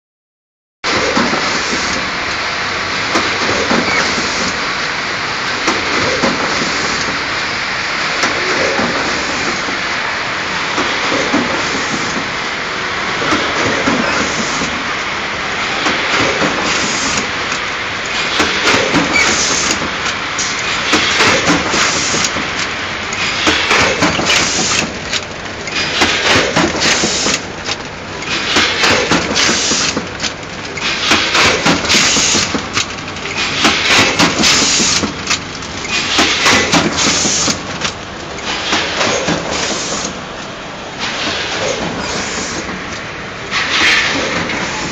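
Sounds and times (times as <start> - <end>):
packing machine clatter: 0.9 - 7.5, 13.1 - 14.8, 15.5 - 44.9
sharp clicks and hisses: 3.1 - 4.6, 13.2 - 14.9, 15.8 - 44.9.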